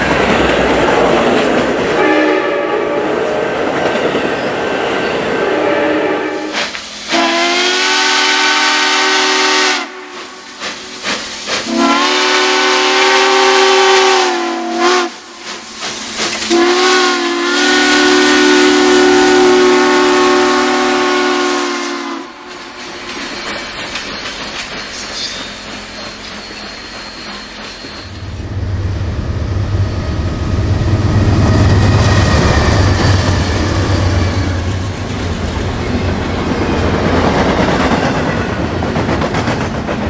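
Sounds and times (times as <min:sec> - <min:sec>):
steam locomotive chime whistle: 0:01.9 - 0:03.2, 0:05.1 - 0:10.5, 0:11.6 - 0:15.4, 0:16.4 - 0:28.7, 0:29.6 - 0:34.8.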